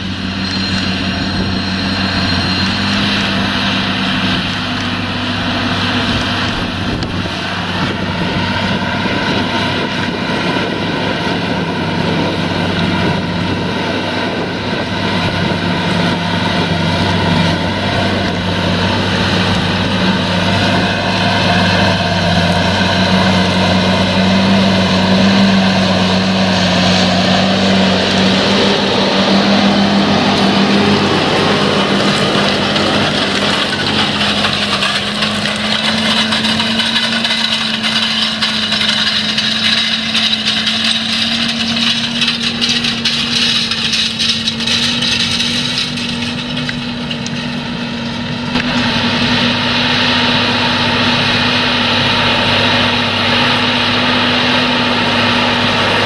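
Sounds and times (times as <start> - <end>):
discs working the soil: 0.0 - 56.0
tractor diesel engine running: 0.0 - 56.0.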